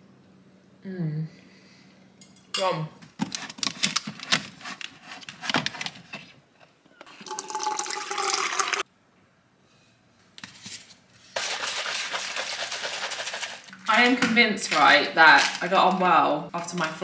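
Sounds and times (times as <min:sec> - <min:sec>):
water running into metal tumbler: 0:07.3 - 0:08.8.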